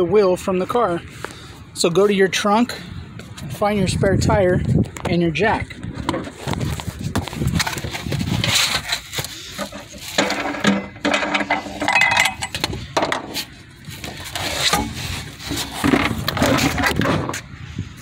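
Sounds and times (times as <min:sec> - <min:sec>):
rustling: 0:06.2 - 0:12.6
knocks and clunks: 0:09.6 - 0:13.4.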